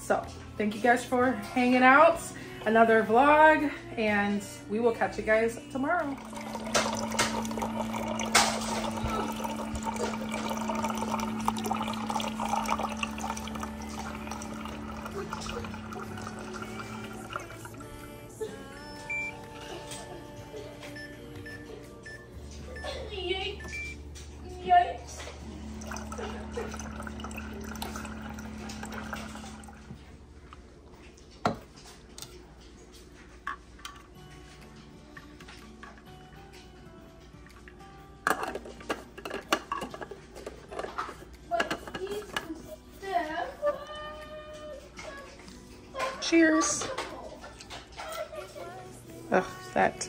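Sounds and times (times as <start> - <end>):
water dispenser humming: 5.3 - 34.2, 35.2 - 50.0
water pouring into glass: 6.2 - 17.8, 25.7 - 29.9.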